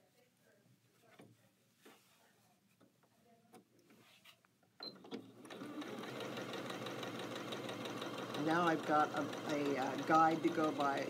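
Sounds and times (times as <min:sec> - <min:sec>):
fabric handled: 0:00.0 - 0:03.1
sewing machine beep: 0:04.8 - 0:05.7
sewing machine stitching: 0:04.8 - 0:11.0.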